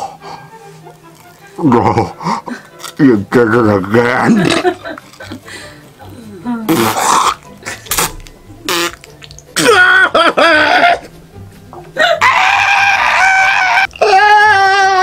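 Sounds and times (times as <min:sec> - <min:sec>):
man gagging and retching: 0:04.0 - 0:05.5, 0:06.7 - 0:11.0, 0:13.8 - 0:15.0.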